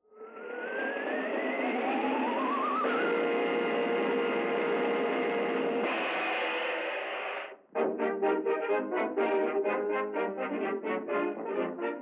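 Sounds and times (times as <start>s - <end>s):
old cartoon title music: 7.7s - 12.0s.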